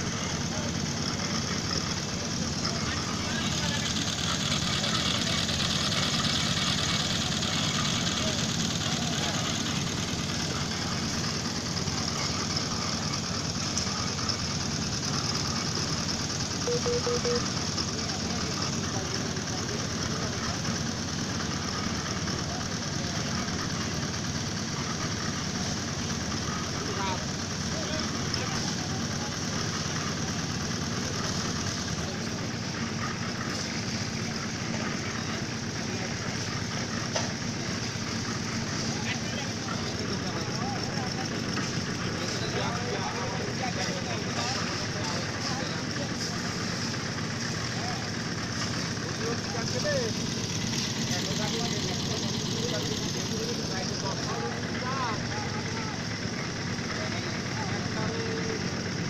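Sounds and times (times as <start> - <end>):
engine running rough: 0.0 - 59.0
short beeps: 16.6 - 17.6.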